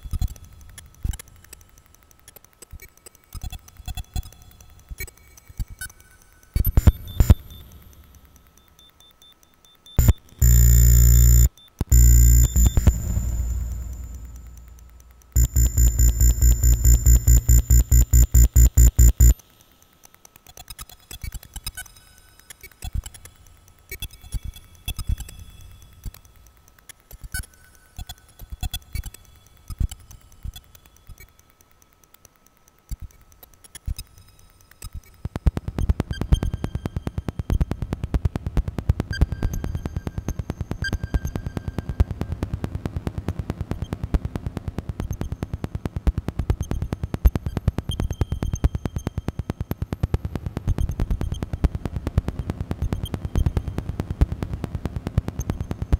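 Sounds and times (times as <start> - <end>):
rapid stream of clicks: 0.0 - 42.2
scattered clicks: 0.0 - 55.9
fast low electronic pulsing: 10.0 - 19.4.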